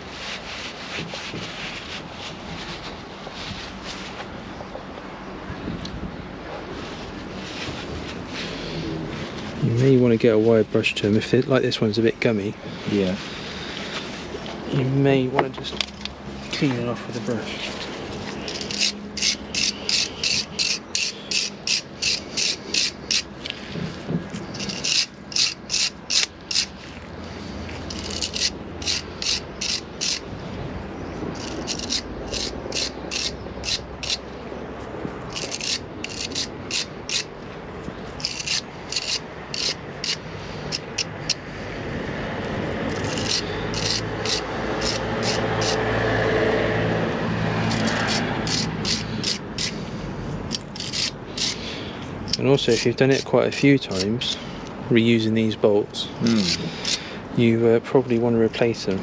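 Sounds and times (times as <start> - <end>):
wire brush scrubbing metal: 17.2 - 23.5, 24.4 - 30.3, 31.4 - 34.2, 35.3 - 37.3, 38.2 - 41.4, 42.9 - 45.9, 47.5 - 49.8, 50.5 - 54.4.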